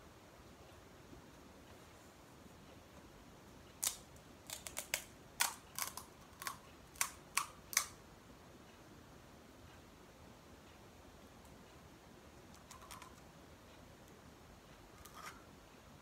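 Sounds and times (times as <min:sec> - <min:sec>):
crisp shell crackling: 0:03.8 - 0:08.0.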